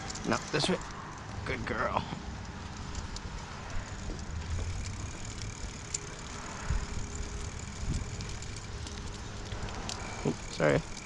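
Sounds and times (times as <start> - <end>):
bicycle tyres on concrete: 0.0 - 11.0
wind on microphone: 6.5 - 8.6.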